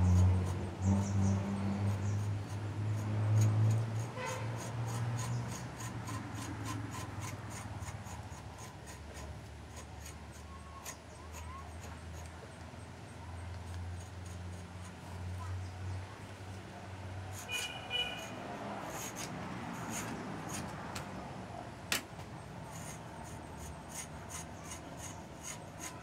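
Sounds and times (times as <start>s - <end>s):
scraping bark from a branch: 2.9s - 12.4s, 17.2s - 21.0s, 22.7s - 26.0s.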